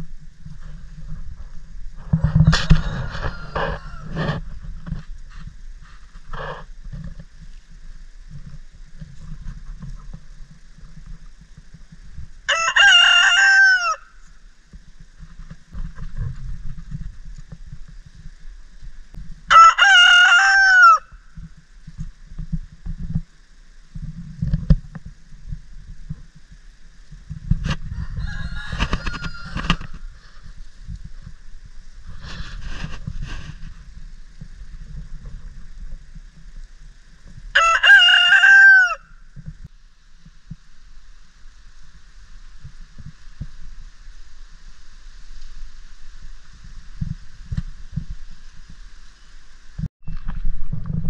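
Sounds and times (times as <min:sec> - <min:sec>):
rooster crowing: 0:02.6 - 0:04.3, 0:12.5 - 0:14.2, 0:19.5 - 0:21.2, 0:27.9 - 0:30.2, 0:37.5 - 0:39.2.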